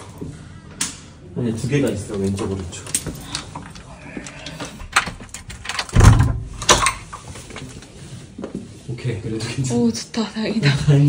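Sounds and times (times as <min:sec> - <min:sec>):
door handle and latch clicking: 0:04.8 - 0:07.0
door thump opening: 0:04.8 - 0:07.0.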